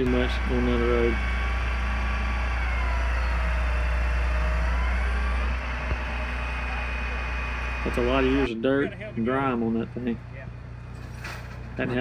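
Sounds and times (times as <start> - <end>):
hydraulic whine: 0.0 - 8.5
truck engine hum: 0.0 - 12.0.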